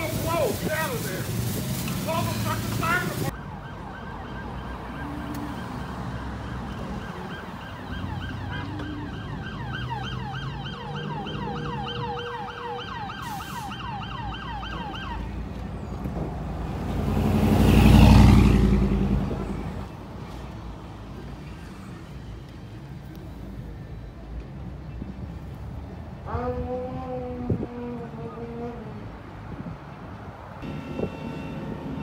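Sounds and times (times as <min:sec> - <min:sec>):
fire engine siren yelp: 0:02.1 - 0:15.6, 0:30.6 - 0:32.0
vehicle passing with low rumble: 0:13.8 - 0:22.4.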